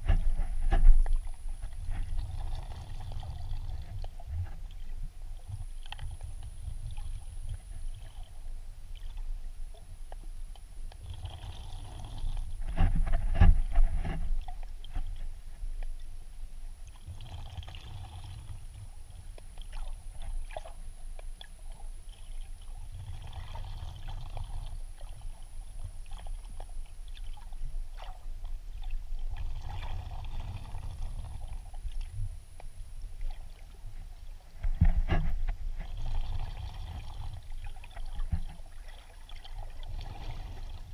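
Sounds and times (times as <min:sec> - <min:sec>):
water sloshing and gurgling: 0:00.0 - 0:40.9.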